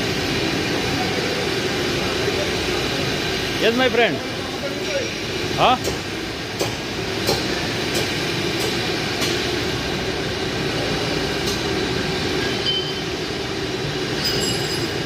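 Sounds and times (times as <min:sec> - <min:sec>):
workshop mechanical din: 0:00.0 - 0:15.0.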